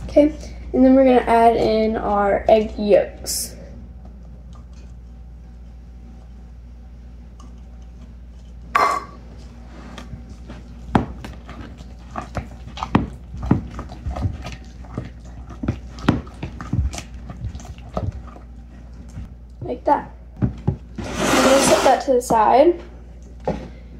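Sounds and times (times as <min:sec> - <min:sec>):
spatula scraping plastic bowl: 0:21.0 - 0:22.2.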